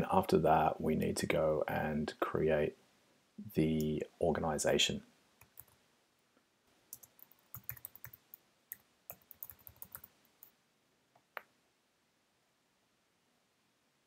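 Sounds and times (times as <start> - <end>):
computer keyboard typing: 5.4 - 5.8, 6.9 - 10.5.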